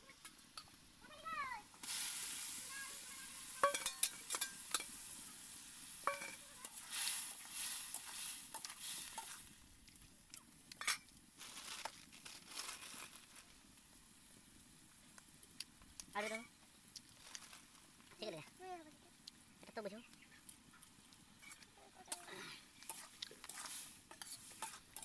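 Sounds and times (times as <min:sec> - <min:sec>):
fish frying in oil: 0:00.0 - 0:18.3, 0:20.4 - 0:25.0
spoon clinking and scraping metal: 0:03.6 - 0:05.0, 0:06.0 - 0:09.5, 0:10.8 - 0:11.1, 0:22.8 - 0:25.0.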